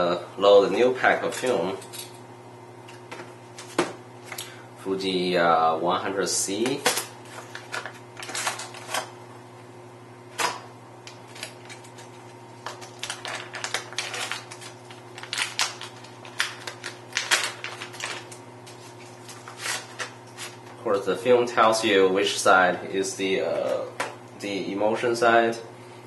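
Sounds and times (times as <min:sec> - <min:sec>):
foil pouch crinkling: 0:11.2 - 0:20.7.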